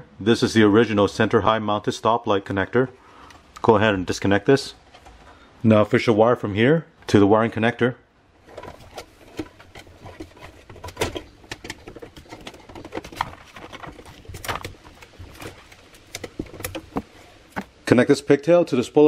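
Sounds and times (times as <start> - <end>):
cable tie scraping against metal: 8.4 - 17.5.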